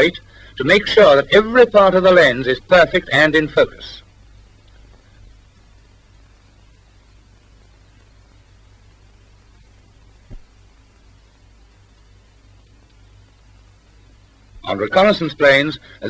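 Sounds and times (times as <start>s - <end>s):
mains hum and hiss: 0.0s - 16.0s
short thump: 10.3s - 10.5s.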